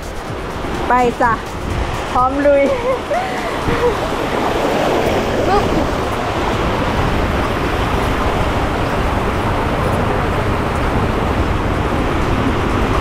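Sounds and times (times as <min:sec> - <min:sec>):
water rushing down a waterslide: 0:00.0 - 0:13.0.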